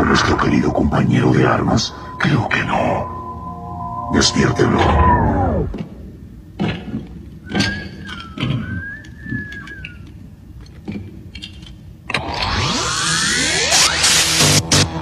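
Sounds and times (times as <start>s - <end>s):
wavering electronic whistle: 1.2s - 6.1s, 12.4s - 14.6s
thuds with falling pitch: 1.9s - 6.2s.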